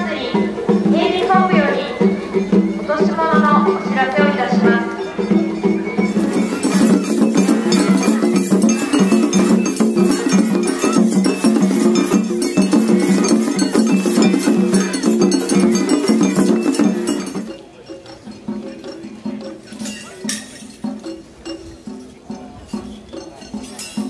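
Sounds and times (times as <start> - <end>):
percussion: 0.0 - 24.0
hand gong struck rhythmically: 6.1 - 17.5.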